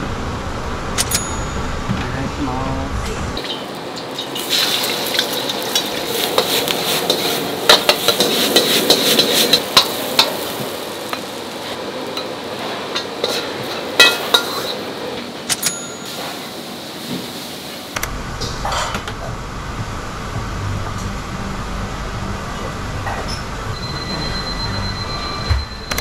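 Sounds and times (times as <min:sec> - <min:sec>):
food sizzling in a pan: 0:03.4 - 0:15.2, 0:16.0 - 0:18.0.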